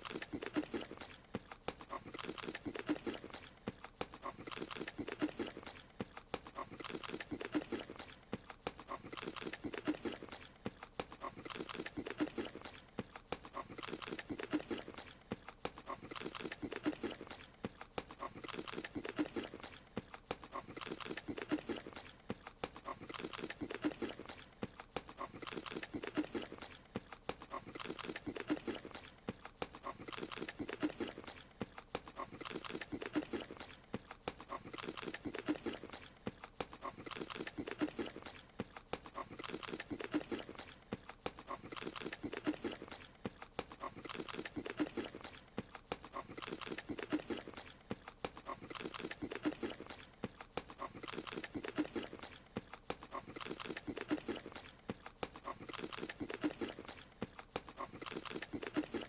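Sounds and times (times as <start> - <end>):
wet munching and crunching: 0.0 - 59.0.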